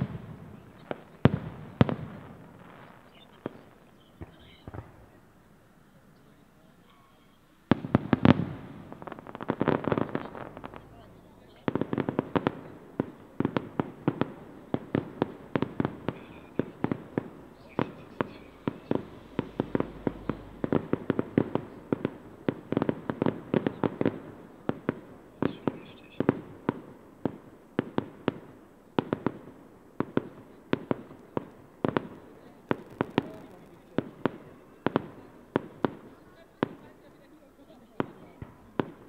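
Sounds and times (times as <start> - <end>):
fireworks bursting with sharp bangs: 0.0 - 39.0.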